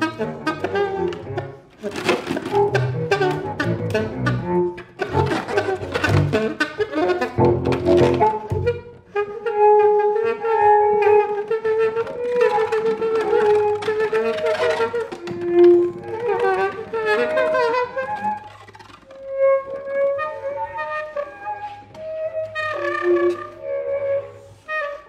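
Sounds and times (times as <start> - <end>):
bowed double bass: 0.0 - 1.8, 2.4 - 9.5
saxophone long wavering notes: 0.0 - 25.0.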